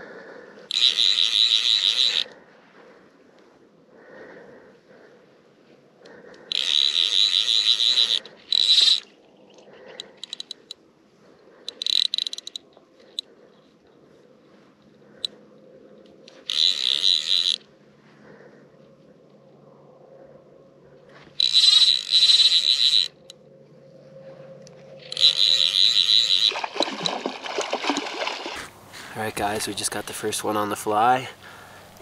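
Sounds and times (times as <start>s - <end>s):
fly reel ratcheting clicks: 0.7s - 2.4s, 6.5s - 9.1s, 10.0s - 10.8s, 11.7s - 12.7s, 16.2s - 17.7s, 21.4s - 23.4s, 25.0s - 26.6s.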